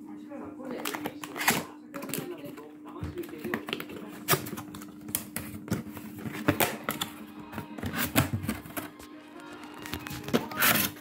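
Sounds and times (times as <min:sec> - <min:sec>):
cardboard tearing and snapping: 0:00.8 - 0:02.2, 0:09.7 - 0:11.0.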